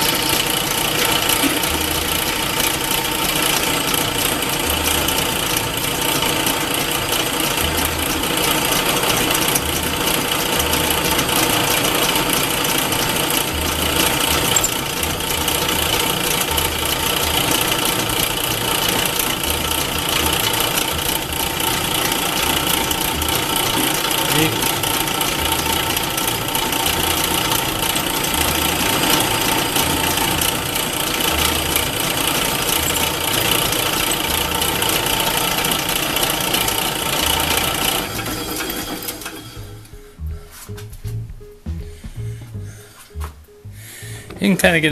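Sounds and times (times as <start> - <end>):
drill boring into metal shaft: 0.0 - 39.4
metal lathe whirring: 0.0 - 39.7.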